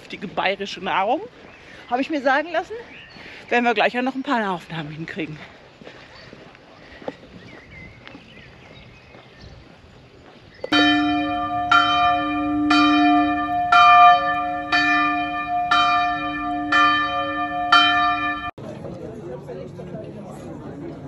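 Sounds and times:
church bell tolling: 10.7s - 18.6s.

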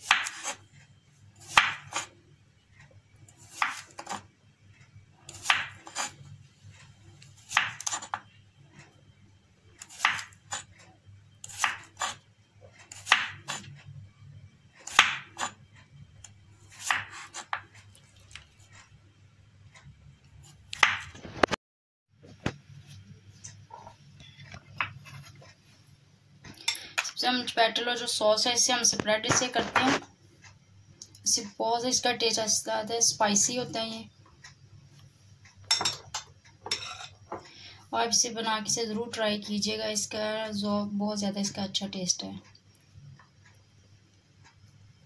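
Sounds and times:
knife slicing cucumber: 0.0s - 0.6s, 1.4s - 2.1s, 3.4s - 4.2s, 5.3s - 6.2s, 7.4s - 8.2s, 9.8s - 10.7s, 11.4s - 12.2s, 12.9s - 13.7s, 16.7s - 17.7s
low steady hum: 0.0s - 21.5s, 22.2s - 45.0s.

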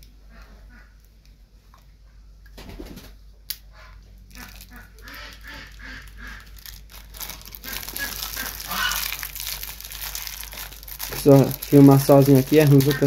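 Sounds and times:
plastic packaging crinkling: 4.3s - 13.0s.

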